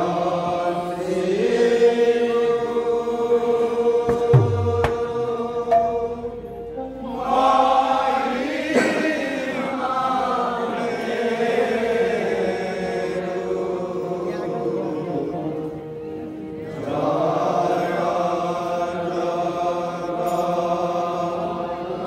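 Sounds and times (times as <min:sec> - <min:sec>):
group chanting devotional song: 0:00.0 - 0:22.0
sharp drum strikes: 0:04.0 - 0:06.3
steady held tone: 0:04.3 - 0:07.2.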